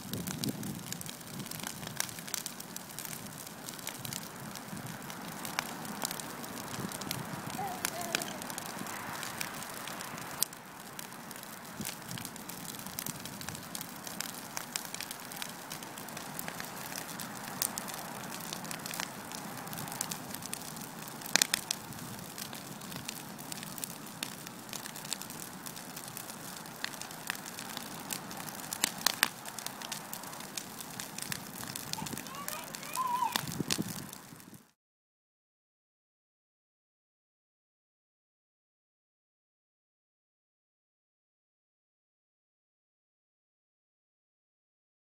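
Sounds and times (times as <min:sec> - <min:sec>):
brush fire crackling and popping: 0:00.0 - 0:34.8.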